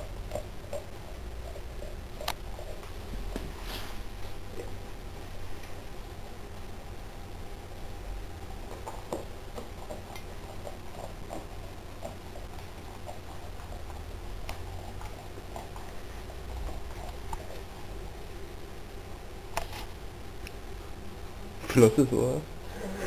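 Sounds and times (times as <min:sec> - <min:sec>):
low steady hum: 0:00.0 - 0:23.0
dog chewing fish: 0:08.7 - 0:17.8.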